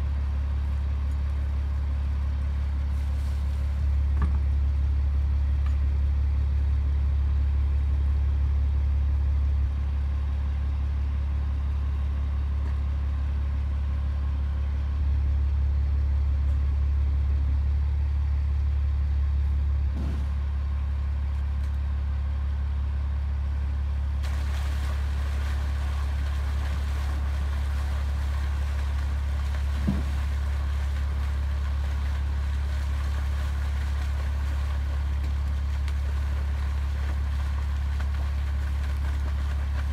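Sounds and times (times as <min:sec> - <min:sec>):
truck engine rumbling: 0:00.0 - 0:39.9
brief thump: 0:19.9 - 0:20.4
rush of water: 0:24.2 - 0:39.9.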